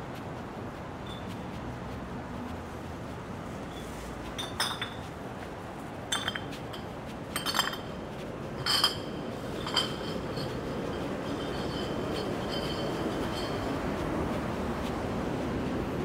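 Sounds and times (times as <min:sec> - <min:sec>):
city street background noise: 0:00.0 - 0:16.0
sharp ringing clinks: 0:08.6 - 0:13.8.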